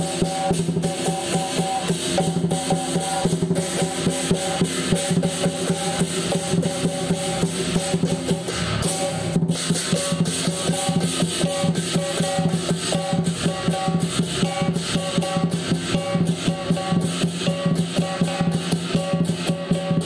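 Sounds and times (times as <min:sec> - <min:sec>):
cymbals clashing: 0:00.0 - 0:20.0
gong ringing: 0:00.0 - 0:20.0
lion dance drum beating: 0:00.0 - 0:20.0.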